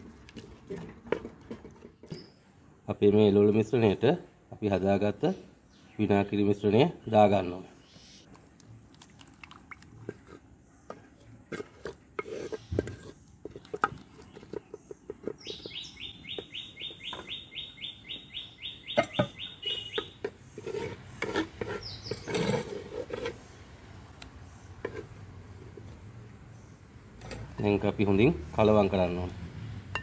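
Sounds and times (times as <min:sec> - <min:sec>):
bird trilling: 0:15.4 - 0:20.2.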